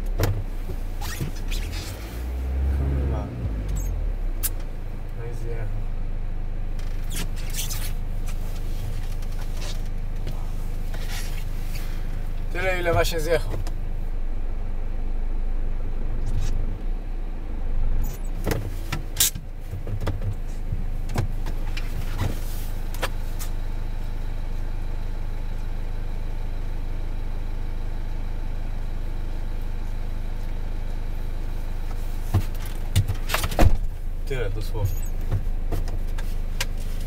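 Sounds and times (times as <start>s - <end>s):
diesel engine idling: 0.0s - 37.0s
car door clunks and knocks: 0.1s - 1.4s, 18.3s - 23.2s, 32.3s - 34.0s.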